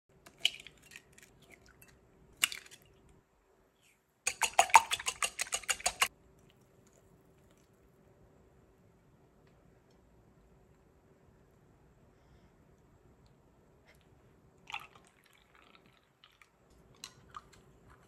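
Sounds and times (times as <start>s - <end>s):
whisk clinking against glass bowl: 4.3s - 6.1s.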